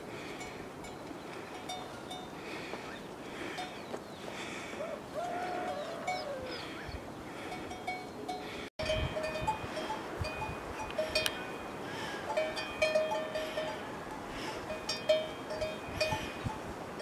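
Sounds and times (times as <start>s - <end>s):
livestock bells clinking: 0.2s - 2.7s, 3.4s - 3.8s, 7.4s - 17.0s
short falling animal call: 4.8s - 6.9s.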